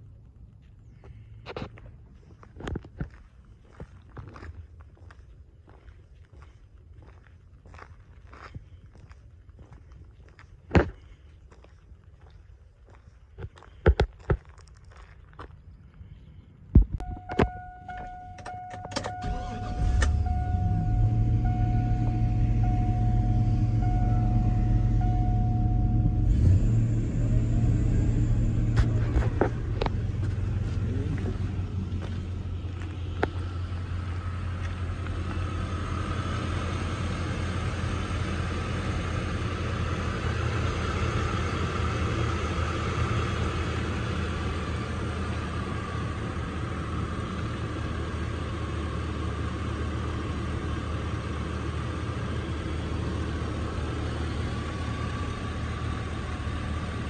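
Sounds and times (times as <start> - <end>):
faint steady whine: 16.1 - 57.0
car engine idling: 17.0 - 57.0.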